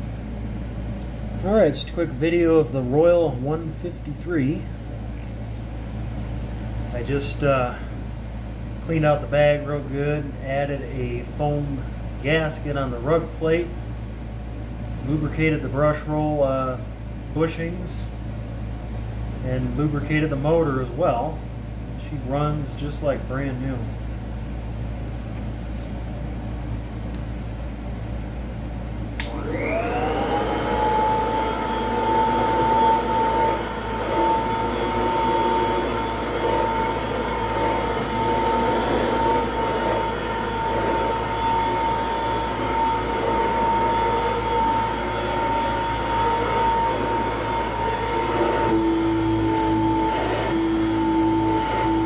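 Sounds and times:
vacuum switch click: 29.2s - 29.4s
vacuum cleaner motor whine: 29.2s - 52.0s.

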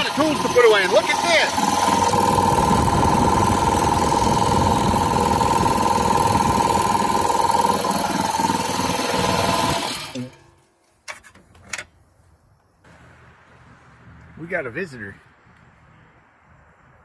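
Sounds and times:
air compressor running: 0.0s - 10.5s.

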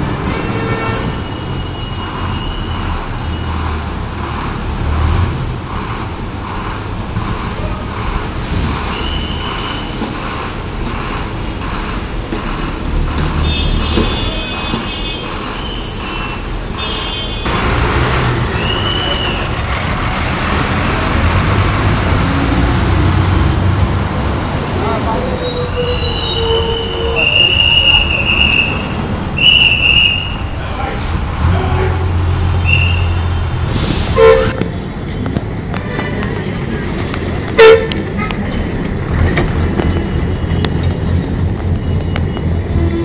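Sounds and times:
bus diesel engines rumbling: 0.0s - 43.0s
traffic noise: 0.0s - 43.0s
high-pitched squeals or toots: 13.6s - 17.3s, 24.0s - 30.5s.

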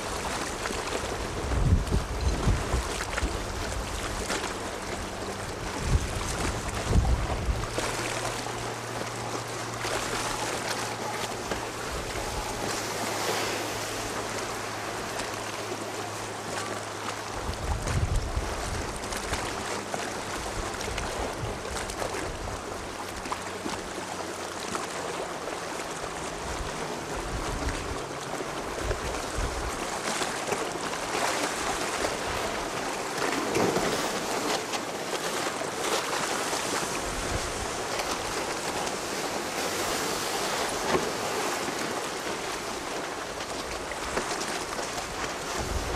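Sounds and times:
wind on microphone: 0.0s - 9.3s, 10.0s - 15.1s, 17.3s - 19.6s, 20.4s - 22.9s, 26.3s - 28.0s, 28.7s - 29.9s, 36.6s - 41.4s, 43.7s - 45.9s
choppy sea waves: 0.0s - 45.9s.

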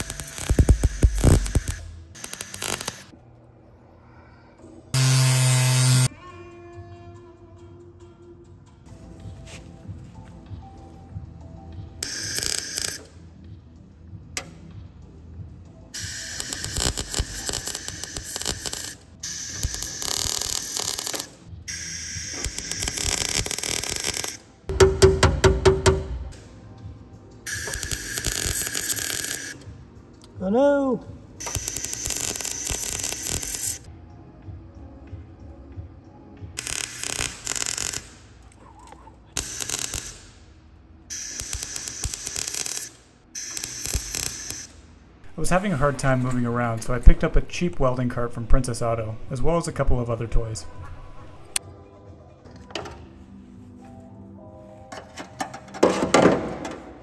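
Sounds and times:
welder arc crackling: 0.0s - 3.1s, 5.0s - 6.1s, 12.0s - 13.1s, 16.0s - 24.4s, 27.5s - 29.6s, 31.4s - 33.9s, 36.6s - 38.4s, 39.4s - 40.4s, 41.1s - 45.6s.

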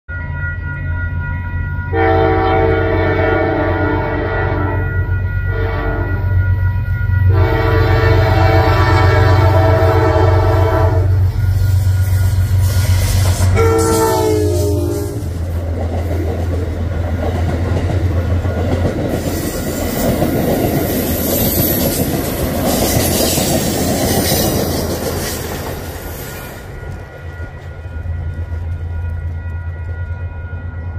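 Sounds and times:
train horn: 1.9s - 6.4s, 7.2s - 15.4s.

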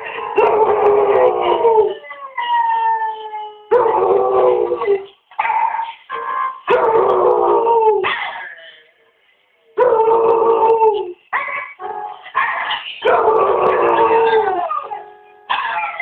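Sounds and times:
piano music: 0.0s - 2.0s, 11.8s - 16.0s
dog howling: 0.4s - 5.1s, 6.2s - 8.0s, 12.4s - 16.0s
another dog howling: 13.0s - 14.9s.

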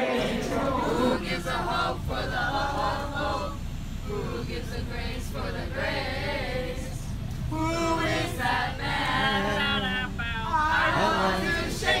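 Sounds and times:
coach engine rumble: 0.0s - 12.0s
young voices singing together: 0.0s - 12.0s.

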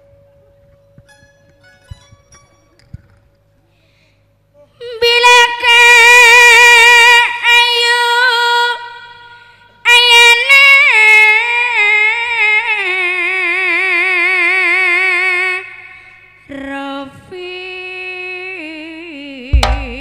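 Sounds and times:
woman singing with vibrato: 4.8s - 9.3s, 9.9s - 15.8s.

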